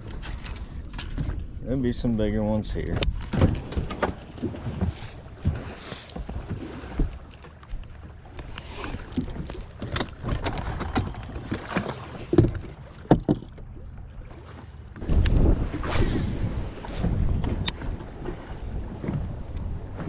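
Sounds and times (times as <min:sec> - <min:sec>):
clicks and knocks of gear: 0:00.0 - 0:01.5, 0:07.0 - 0:13.6
waves slapping boat hull: 0:00.0 - 0:20.0
wind on microphone: 0:15.0 - 0:20.0.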